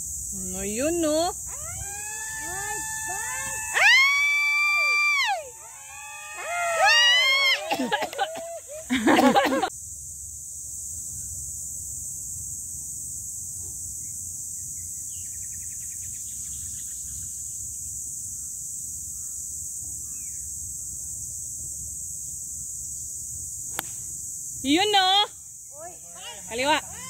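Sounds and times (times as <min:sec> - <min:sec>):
high-pitched insect drone: 0:00.0 - 0:27.0
faint bird chirps: 0:14.0 - 0:21.2.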